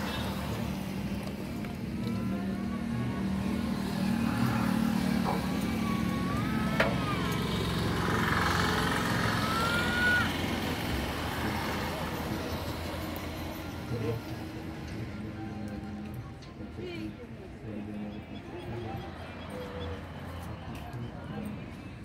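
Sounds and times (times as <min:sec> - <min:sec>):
engine running: 0:00.0 - 0:22.0
thin gliding whistling tones: 0:18.1 - 0:22.0.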